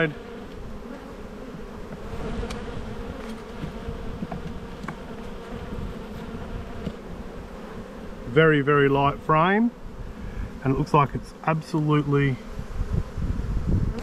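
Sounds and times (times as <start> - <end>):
honeybees buzzing: 0.0 - 14.0
hive tool clicking on frames: 1.9 - 5.6.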